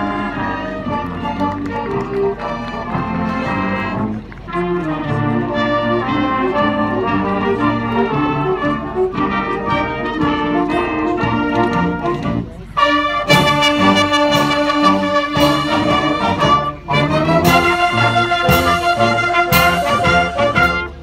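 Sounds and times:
marching band playing: 0.0s - 21.0s.

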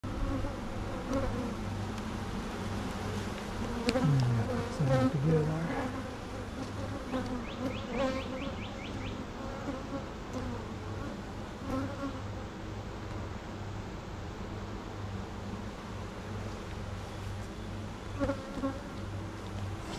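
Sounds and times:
bee flying close past: 0.1s - 12.2s
honeybees buzzing: 0.1s - 12.3s, 14.5s - 19.9s.

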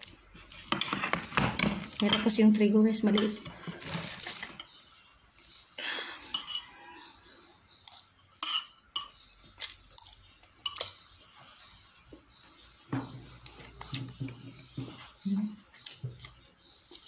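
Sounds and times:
fork clinking and scraping on plate: 6.3s - 6.8s, 8.4s - 9.8s, 10.6s - 11.1s.

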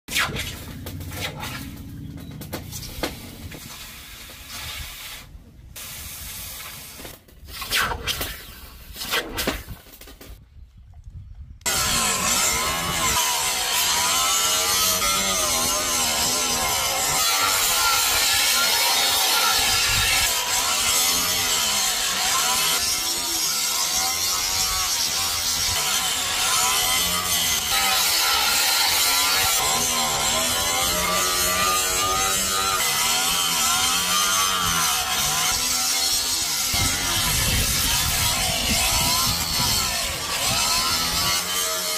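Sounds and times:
angle grinder grinding steel: 11.6s - 41.9s.

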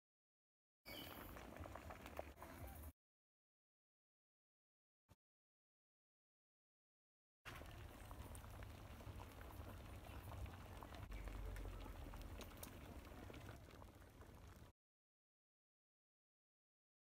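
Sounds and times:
thick soup bubbling in a pot: 0.9s - 2.9s, 7.5s - 14.7s.

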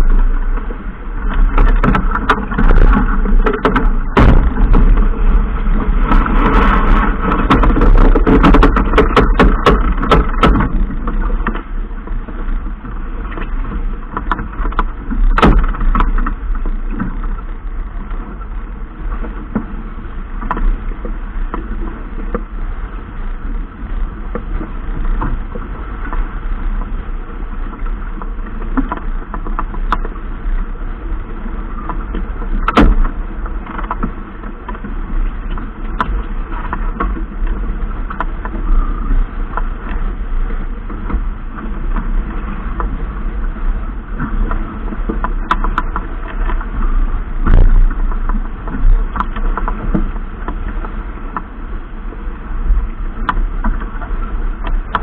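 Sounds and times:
wind and water rushing: 0.0s - 55.0s
knocks and clicks: 1.3s - 5.3s, 6.0s - 11.6s, 44.2s - 46.8s.

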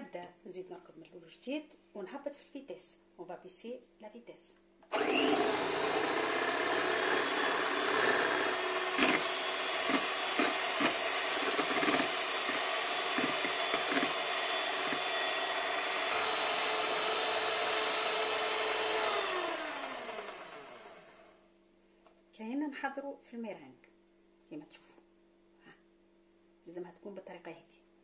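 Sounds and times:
electric hand mixer whining: 4.9s - 21.4s.

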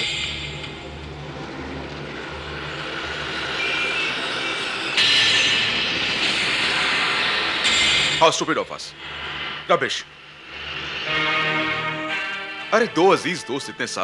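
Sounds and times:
road and traffic noise: 0.0s - 8.2s, 9.0s - 12.8s.

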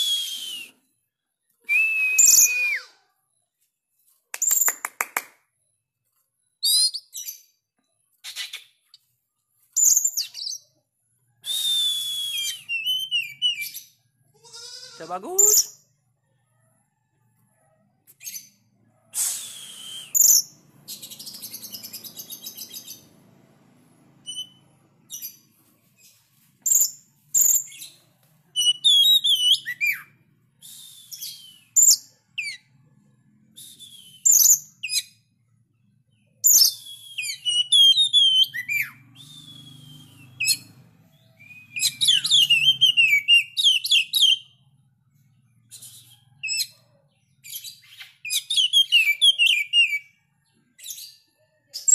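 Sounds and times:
bird singing whistled phrases: 0.0s - 0.9s, 1.6s - 3.0s, 6.6s - 7.4s, 11.4s - 13.9s, 19.2s - 23.0s, 28.6s - 32.6s, 33.6s - 35.1s, 36.4s - 40.7s, 41.4s - 44.5s, 47.5s - 50.1s.

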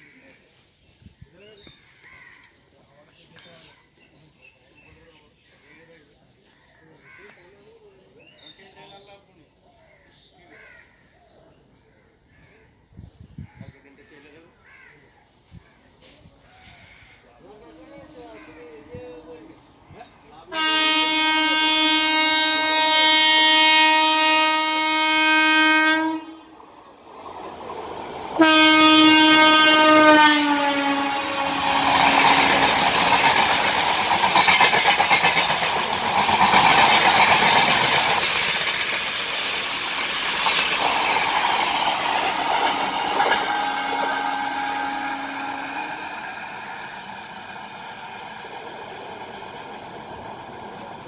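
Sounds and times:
train coaches rumbling: 16.0s - 51.0s
locomotive air horn blast: 20.5s - 26.6s, 28.4s - 33.2s, 42.0s - 46.8s.

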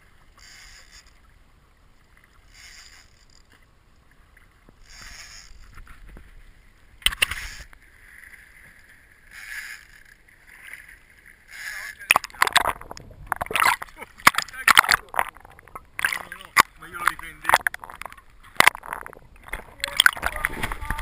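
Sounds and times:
water sloshing against boat hull: 10.2s - 21.0s.

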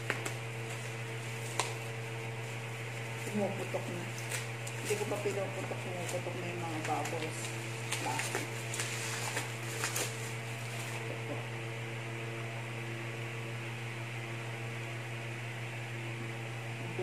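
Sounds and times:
bubble wrap crinkling: 0.0s - 11.2s
steady low hum: 0.0s - 17.0s.

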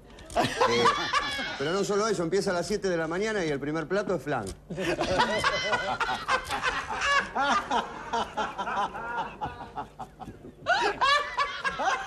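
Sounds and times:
audience laughing: 0.3s - 1.7s, 4.7s - 12.0s.

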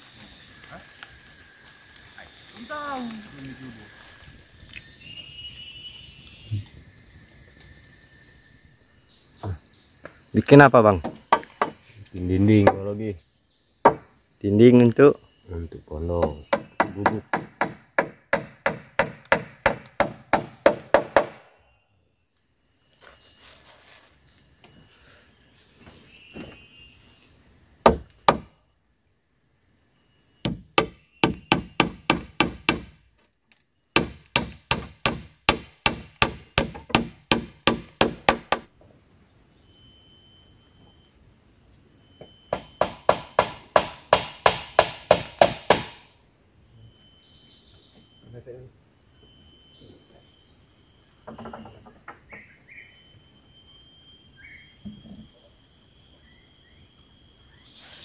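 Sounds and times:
hammer nailing wood: 16.2s - 21.4s, 27.9s - 28.5s, 30.4s - 33.0s, 34.0s - 38.7s, 42.5s - 46.0s.

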